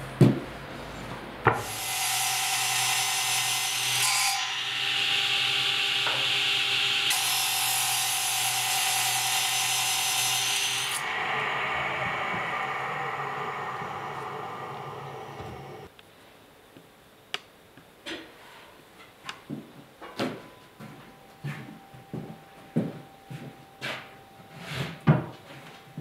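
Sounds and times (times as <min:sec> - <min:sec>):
saw cutting wooden board: 0:01.6 - 0:15.9
machine motor hum: 0:11.0 - 0:15.9.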